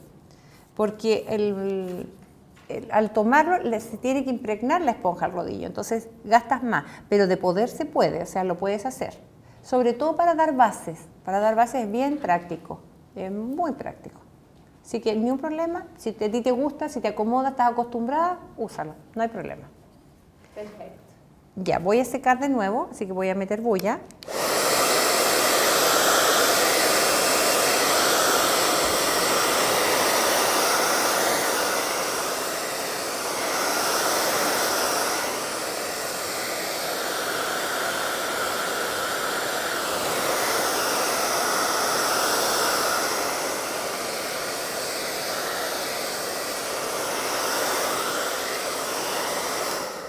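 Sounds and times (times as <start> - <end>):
hair dryer blowing: 24.2 - 50.0.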